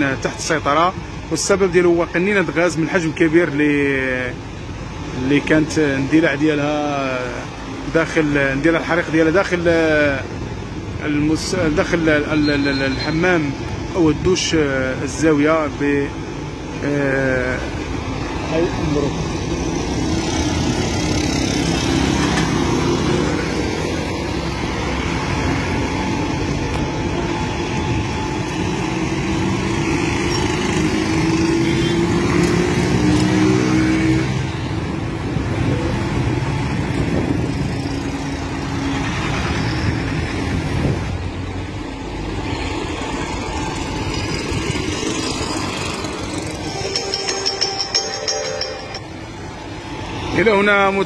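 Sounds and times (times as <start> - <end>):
street traffic: 0.0 - 51.0
scooters and motorbikes passing: 18.4 - 26.4, 42.6 - 50.4.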